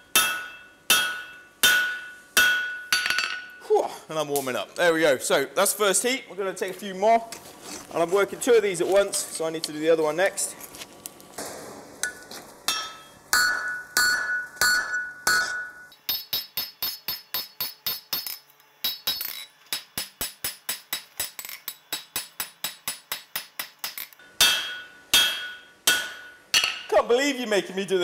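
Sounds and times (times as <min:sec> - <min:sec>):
hammer striking hot steel on anvil: 0:00.0 - 0:03.6, 0:11.4 - 0:26.9
anvil ringing: 0:00.1 - 0:03.6, 0:12.0 - 0:17.5, 0:24.2 - 0:26.9.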